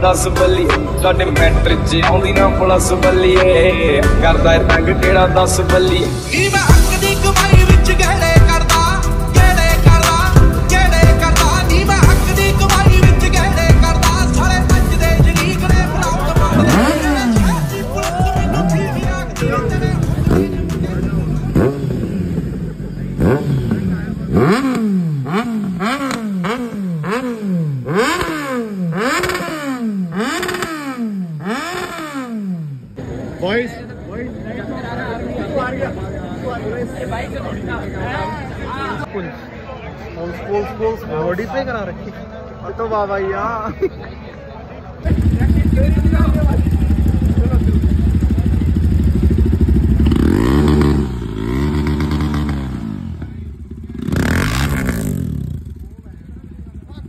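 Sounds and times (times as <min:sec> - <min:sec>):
motorcycle engine revving: 0:05.7 - 0:33.3, 0:45.0 - 0:57.0.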